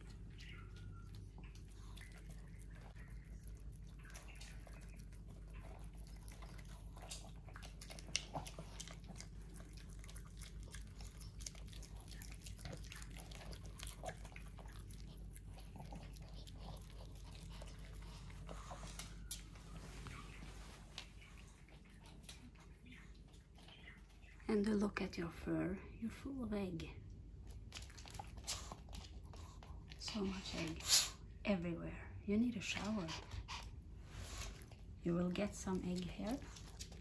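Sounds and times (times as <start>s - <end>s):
dog chewing with wet mouth clicks: 0.0s - 19.6s, 27.4s - 30.0s, 34.4s - 37.0s.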